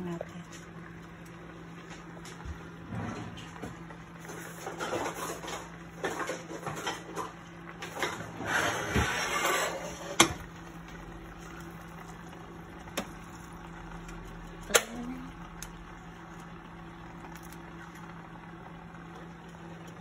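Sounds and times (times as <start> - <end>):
low kitchen hum: 0.0 - 20.0
utensils clinking on steel pots: 4.2 - 10.4.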